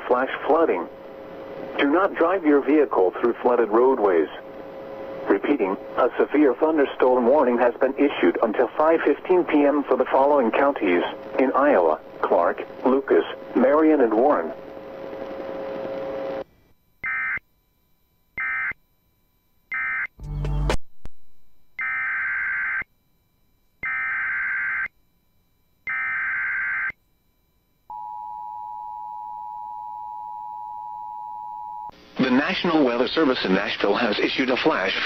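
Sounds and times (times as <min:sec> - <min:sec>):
burst of static: 0:00.0 - 0:16.4, 0:32.0 - 0:35.0.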